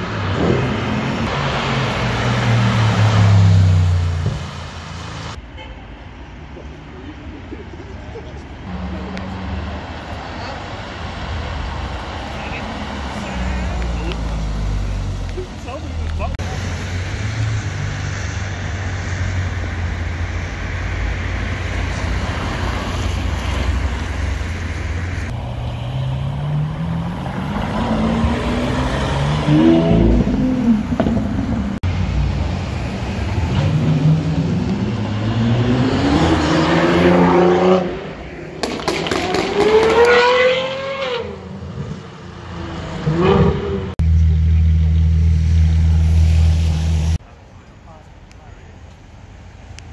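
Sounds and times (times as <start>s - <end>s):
another sports car accelerating away: 25.8s - 31.7s, 33.5s - 38.1s
sports car engine accelerating: 33.5s - 47.2s.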